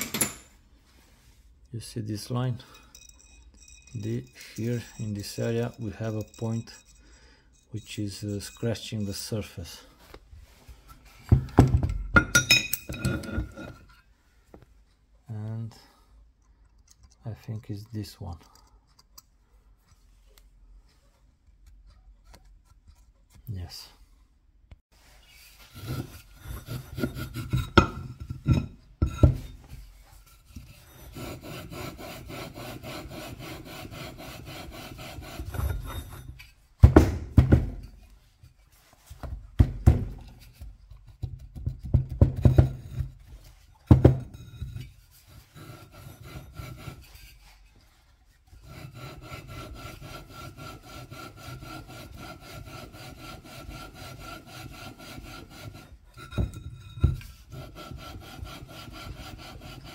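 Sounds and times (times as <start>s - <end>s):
metallic knocks: 0.0s - 0.6s
gritty metal-on-metal rasp: 2.4s - 9.9s, 12.3s - 14.1s, 25.0s - 36.7s, 42.4s - 59.9s.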